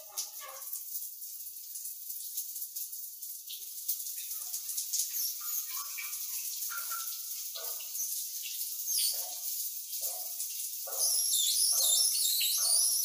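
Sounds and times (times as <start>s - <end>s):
shower spray hissing: 4.3s - 9.3s, 10.9s - 13.0s.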